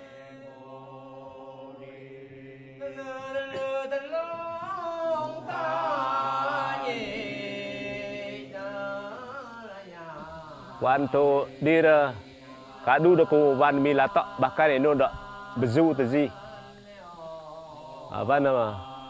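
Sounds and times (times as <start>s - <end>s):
person singing chant-like melody: 0.0s - 19.0s
steady low drone: 10.0s - 19.0s.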